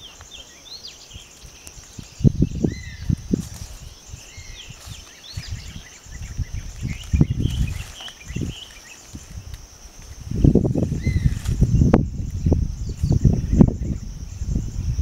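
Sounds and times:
birds chirping: 0.0 - 15.0
high insect drone: 0.0 - 15.0.

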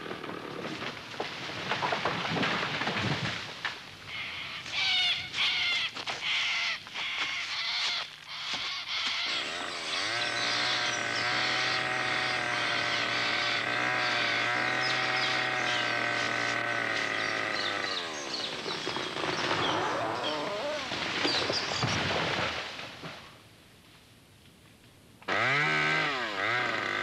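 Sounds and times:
chainsaw cutting tree: 0.0 - 3.2, 8.6 - 22.7, 25.2 - 27.0
tree cracking and crashing: 0.0 - 8.1, 11.0 - 23.4.

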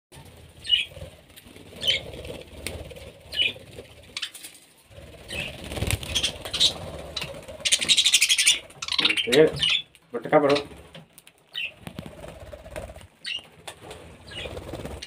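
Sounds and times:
wings flapping and rustling: 0.1 - 15.0
budgerigars chirping: 0.6 - 1.0, 1.8 - 2.1, 3.3 - 4.5, 5.2 - 10.8, 11.5 - 11.8, 13.2 - 13.5, 14.2 - 14.8.

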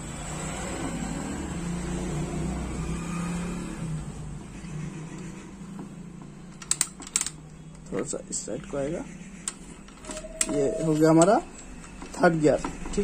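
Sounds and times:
vehicle engine running: 4.0 - 6.7
sharp clicks: 6.6 - 8.8, 9.4 - 13.0.

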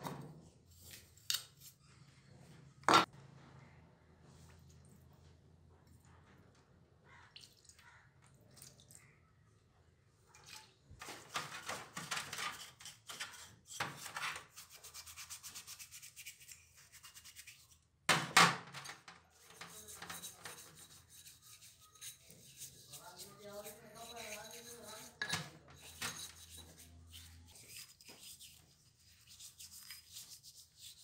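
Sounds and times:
brush scrubbing metal parts: 11.1 - 17.8, 18.8 - 31.0.

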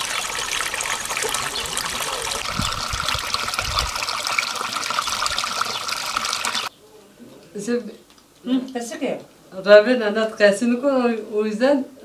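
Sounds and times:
running water: 0.0 - 6.7.

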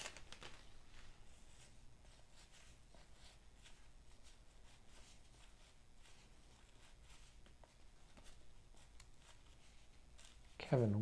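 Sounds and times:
cards sliding with soft swishes: 0.9 - 10.6.

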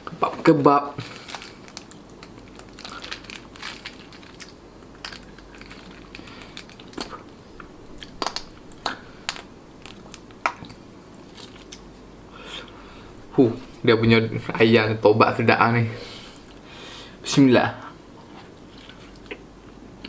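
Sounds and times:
plastic sachet crinkling: 1.0 - 11.8.

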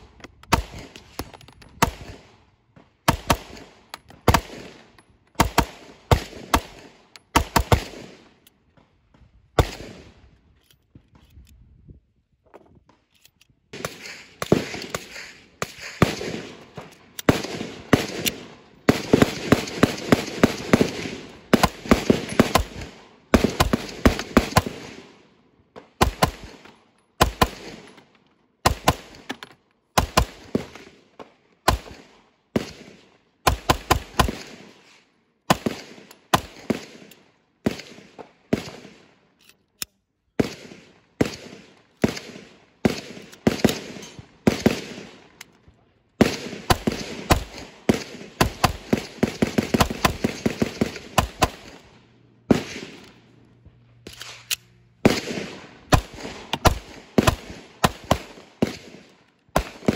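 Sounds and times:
pistol shots with echo: 3.0 - 8.4, 54.2 - 59.9.

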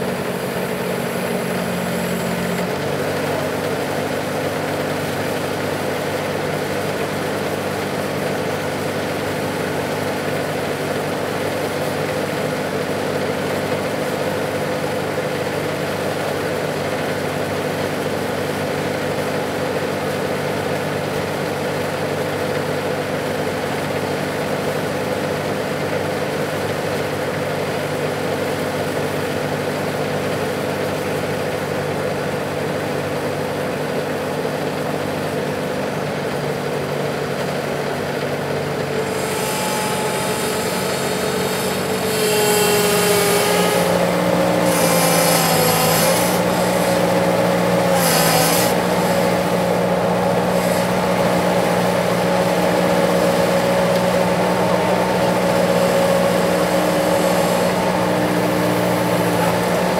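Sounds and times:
diesel engine idling: 0.0 - 14.2.

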